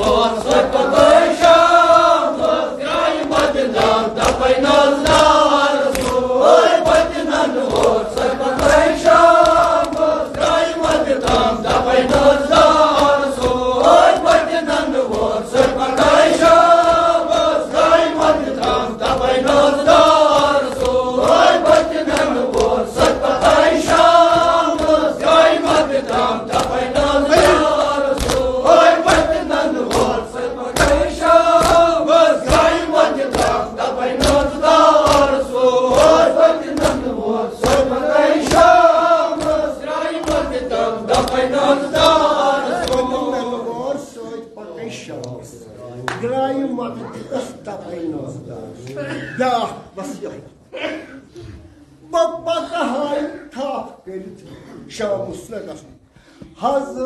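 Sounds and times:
hands slapping on chests: 0.0 - 43.2
men chanting in unison: 0.0 - 45.1.

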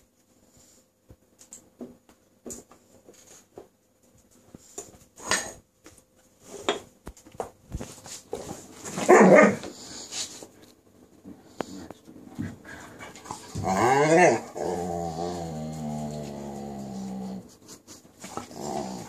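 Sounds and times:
dogs playing scuffles and taps: 1.8 - 13.9.

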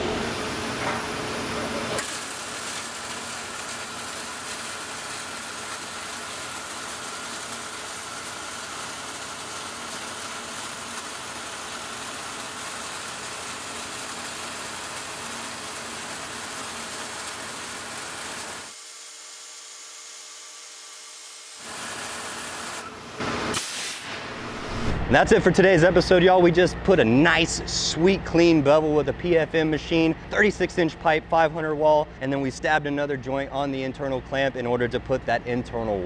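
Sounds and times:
welding arc hissing: 2.0 - 19.6, 20.6 - 25.4.

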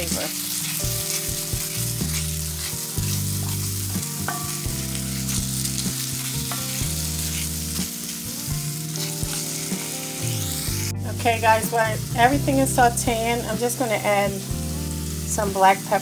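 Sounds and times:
wooden spoon scraping pan: 0.0 - 7.9
vegetables sizzling in oil: 0.0 - 16.0.

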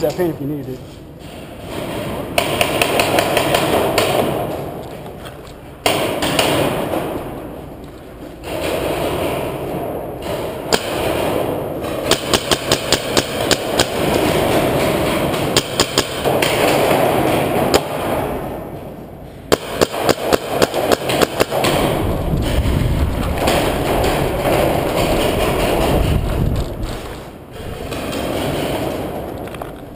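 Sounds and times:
steady background noise: 0.0 - 29.9
paintball marker firing: 2.4 - 4.7, 10.2 - 18.7, 19.5 - 22.6.

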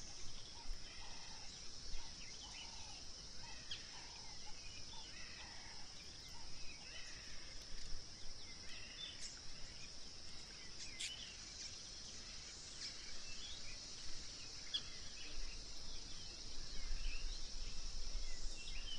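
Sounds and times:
bird chirps and calls: 10.4 - 11.4.

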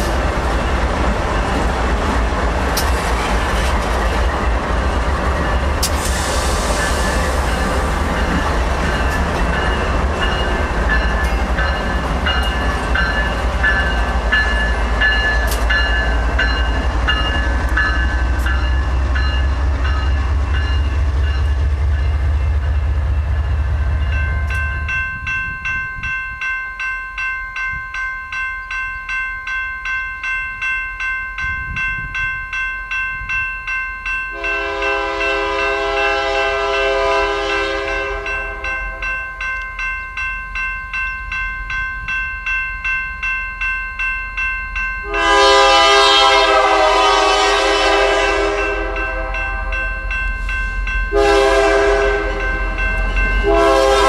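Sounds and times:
diesel locomotive rumbling past: 0.0 - 26.5, 34.1 - 39.9, 43.2 - 54.0
bell ringing: 6.8 - 22.8, 23.4 - 35.3, 48.6 - 51.5, 52.3 - 53.7
locomotive air horn blasts: 34.4 - 39.0, 45.0 - 49.9, 51.1 - 52.8, 53.4 - 54.0.

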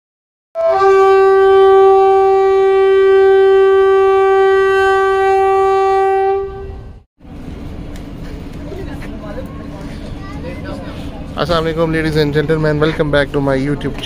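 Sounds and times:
long horn blast: 0.6 - 7.1.

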